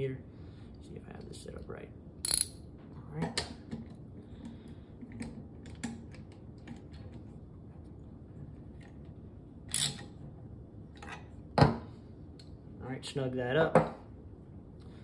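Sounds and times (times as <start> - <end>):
tools clattering: 2.2 - 2.6.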